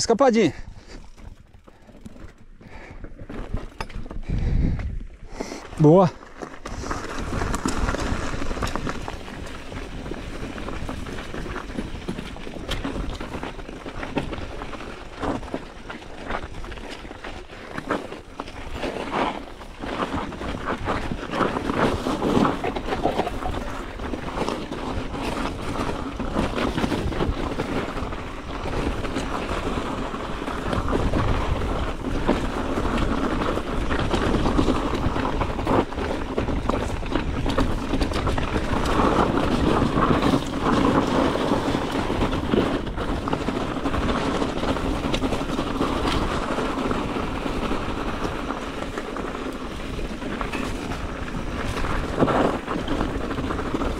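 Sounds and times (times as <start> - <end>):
bike rattling: 0.0 - 53.9
tyres rolling over dirt and rock: 0.0 - 53.9
wind buffeting microphone: 0.4 - 6.0, 19.7 - 53.9.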